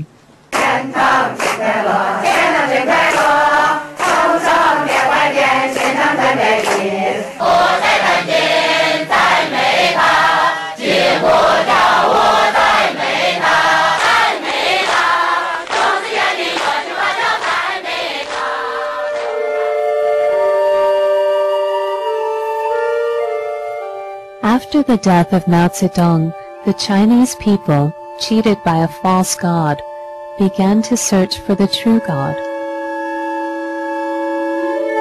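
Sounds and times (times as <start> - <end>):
congregation singing a hymn: 0.6 - 19.8.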